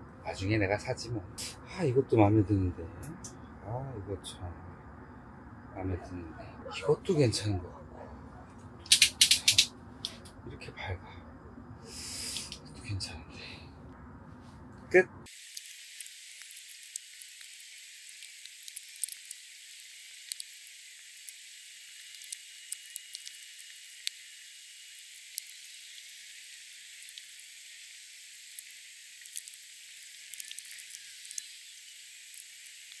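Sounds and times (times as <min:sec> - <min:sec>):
crackling hiss: 0:00.8 - 0:02.0, 0:08.6 - 0:14.0, 0:14.9 - 0:33.0.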